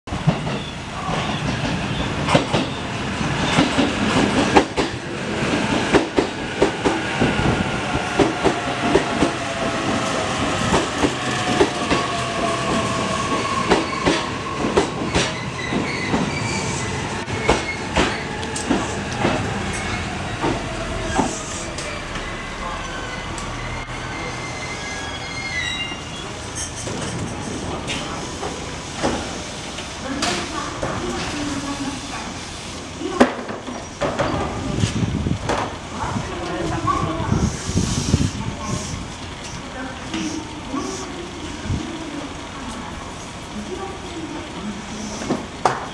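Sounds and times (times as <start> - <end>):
train wheels clacking on rail joints: 0.1 - 16.6, 17.4 - 22.3.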